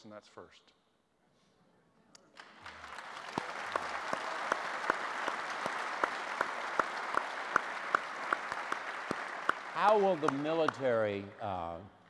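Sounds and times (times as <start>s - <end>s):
sharp hand claps: 2.4s - 11.4s
crowd applauding: 2.4s - 11.8s.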